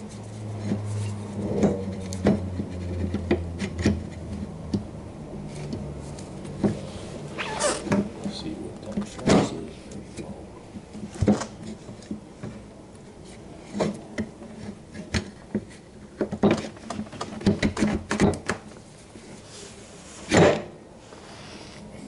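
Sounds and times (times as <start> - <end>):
metal parts knocking and clunking: 13.7 - 18.6.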